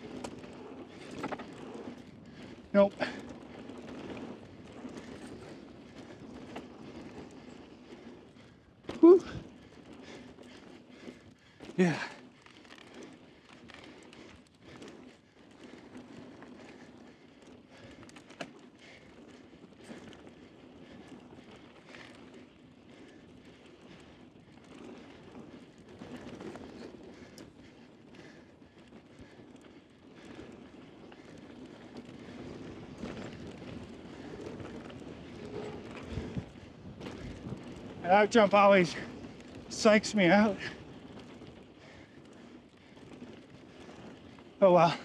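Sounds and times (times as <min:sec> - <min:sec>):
bike rattling and clicking: 0:00.0 - 0:45.0
bike tyres on loose dirt: 0:00.0 - 0:45.0.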